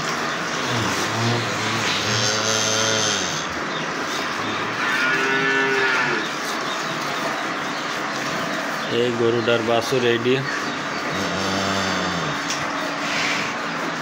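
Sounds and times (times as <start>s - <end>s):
cattle mooing: 0.6s - 3.6s, 4.6s - 6.4s, 11.1s - 12.6s.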